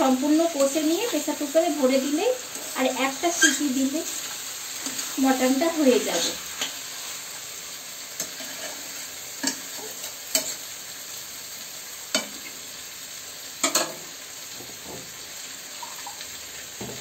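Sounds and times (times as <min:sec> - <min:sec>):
meat sizzling in a pan: 0:00.0 - 0:17.0
metal spatula scraping: 0:02.5 - 0:05.2, 0:08.2 - 0:10.6.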